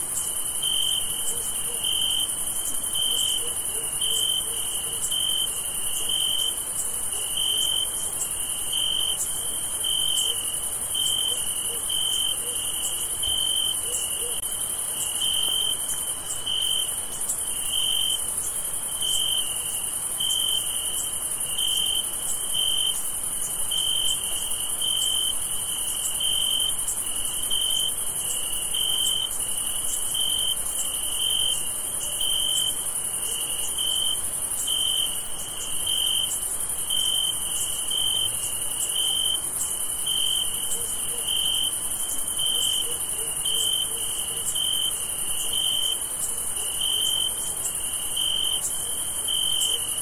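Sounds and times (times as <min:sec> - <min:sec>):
crickets chirping: 0:00.0 - 0:50.0.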